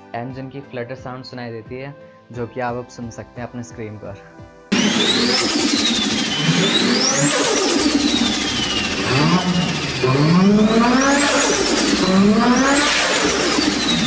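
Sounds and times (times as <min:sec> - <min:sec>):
car engine revving: 0:04.7 - 0:14.0
turbo whine: 0:04.7 - 0:14.0.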